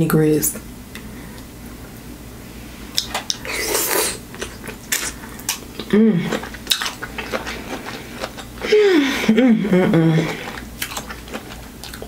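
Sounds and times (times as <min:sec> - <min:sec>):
person humming: 0:05.9 - 0:06.4, 0:08.7 - 0:10.4.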